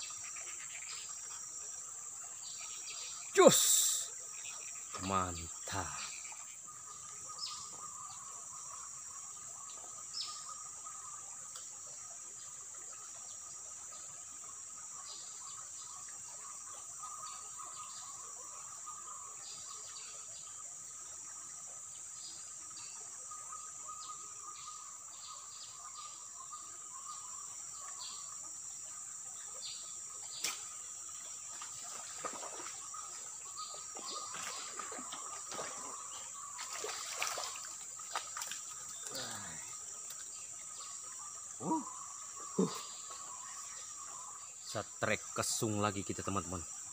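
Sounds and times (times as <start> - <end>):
short insect chirps: 0.0 - 9.4, 12.5 - 46.9
low insect trill: 0.0 - 46.9
high-pitched insect drone: 31.3 - 46.8.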